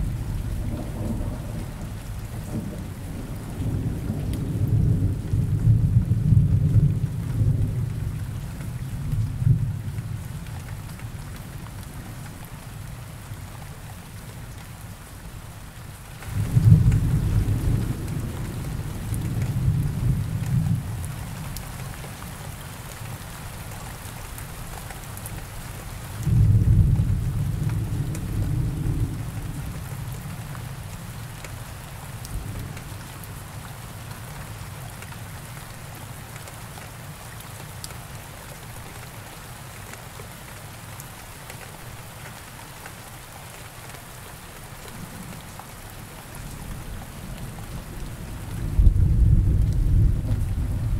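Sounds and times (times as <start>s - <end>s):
thunder rumbling: 0.0s - 7.9s, 26.2s - 30.2s, 47.2s - 50.9s
steady rainfall: 0.0s - 50.9s.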